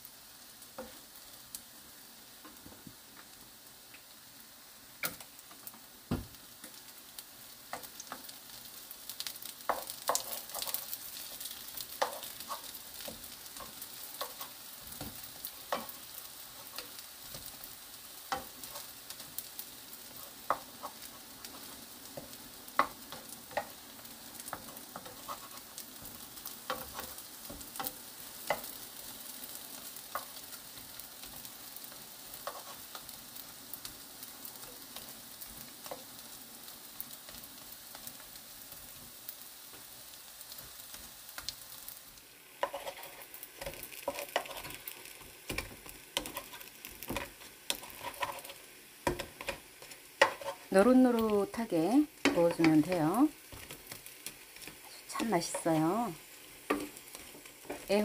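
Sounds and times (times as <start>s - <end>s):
slices sizzling in oil: 0.0s - 58.0s
spatulas clicking against pan: 11.8s - 16.0s, 42.6s - 51.3s.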